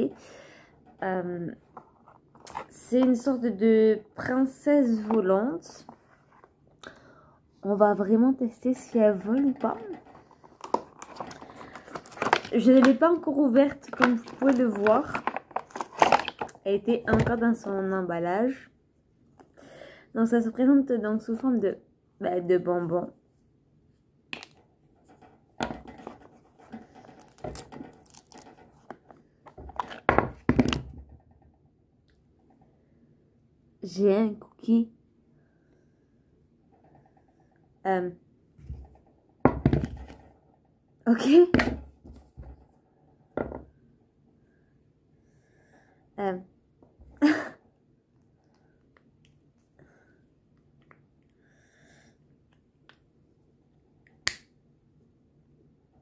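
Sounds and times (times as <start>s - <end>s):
plastic packaging crinkling and tearing: 10.7s - 13.0s, 14.0s - 16.5s.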